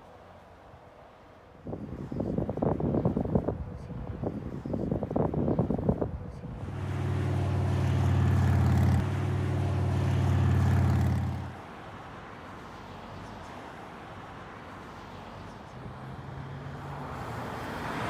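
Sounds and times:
faint road and wind noise: 0.0 - 18.0
vehicle engine running: 6.3 - 11.8.

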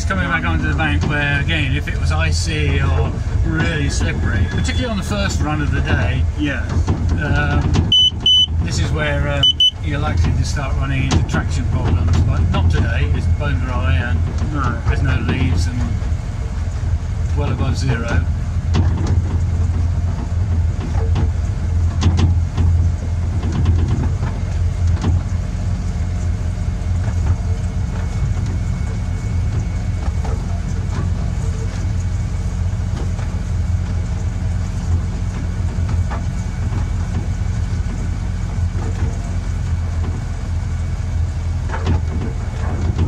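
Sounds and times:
locomotive engine drone: 0.0 - 43.0
wheels clicking on rails: 0.0 - 43.0.

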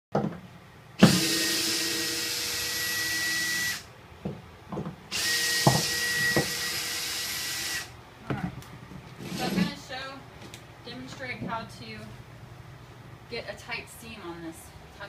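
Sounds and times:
cordless drill whining: 1.0 - 3.9, 5.1 - 7.9.

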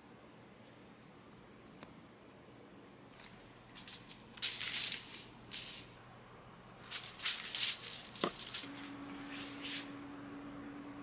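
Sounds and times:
aluminium foil crinkling: 3.2 - 5.9, 6.8 - 8.9
lettuce leaves rustling: 3.2 - 5.9, 6.8 - 9.8.

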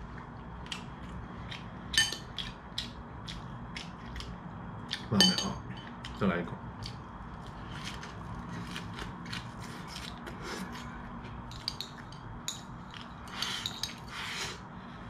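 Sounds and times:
crunchy chewing: 6.8 - 11.0.

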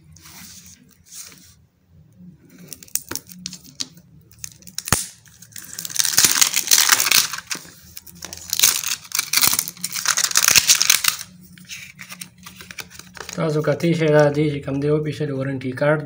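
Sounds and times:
plastic wrap crinkling: 2.6 - 14.4.

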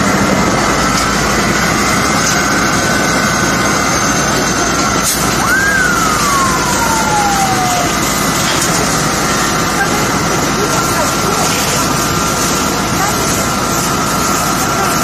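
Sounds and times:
fire truck engine running: 0.0 - 15.0
siren wailing: 5.4 - 9.2.

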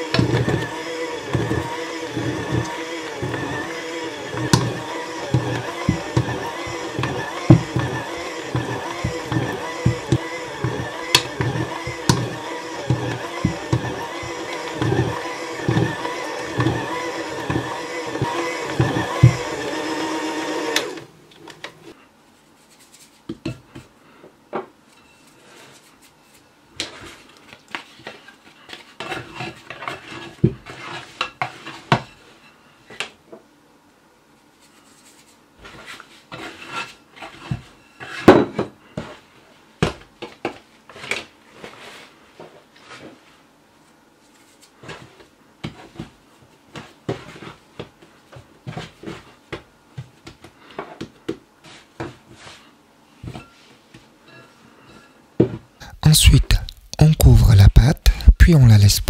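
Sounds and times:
electric hand mixer: 0.0 - 21.1.

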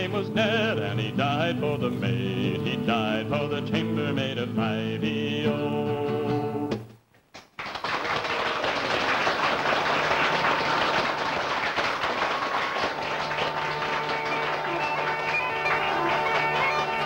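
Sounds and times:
audience applauding: 7.3 - 17.0
fiddle playing reel: 12.8 - 17.0
uilleann pipes drone: 12.9 - 17.0.

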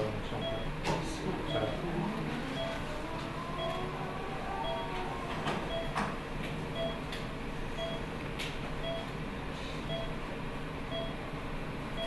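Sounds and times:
room hum: 0.0 - 12.0
patient monitor beeping: 0.4 - 0.8, 1.4 - 4.0, 4.6 - 6.1, 6.7 - 7.1, 7.8 - 8.1, 8.8 - 9.1, 9.9 - 10.2, 10.9 - 11.2.

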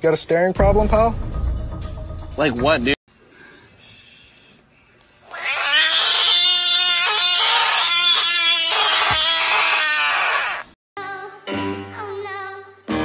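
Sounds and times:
frog screaming: 5.2 - 10.7.

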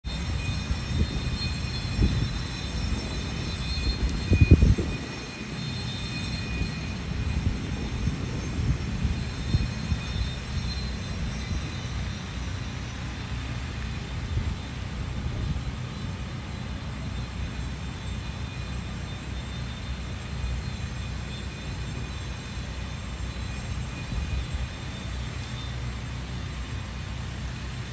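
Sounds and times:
wind buffeting microphone: 0.0 - 18.4.

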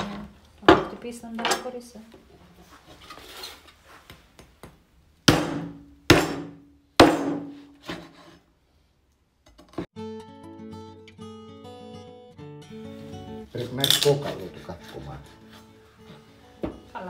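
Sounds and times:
meat cleaver chopping bone: 5.3 - 7.5
acoustic guitar music: 9.9 - 17.0.

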